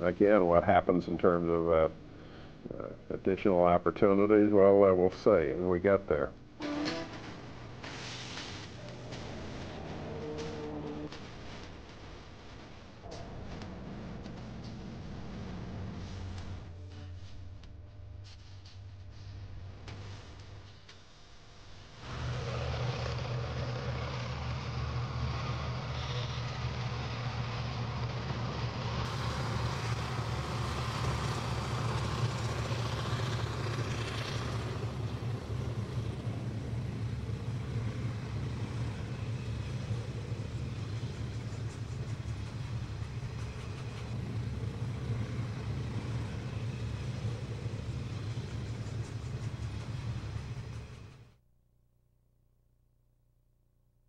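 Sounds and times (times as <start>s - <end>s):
freight train rolling past: 6.6s - 11.3s, 22.0s - 51.3s.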